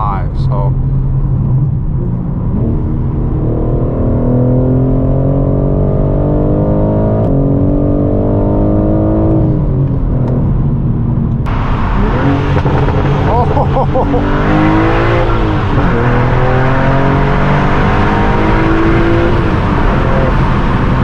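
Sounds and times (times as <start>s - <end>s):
car engine accelerating: 0.0s - 21.0s
sudden rush of noise: 11.5s - 16.8s.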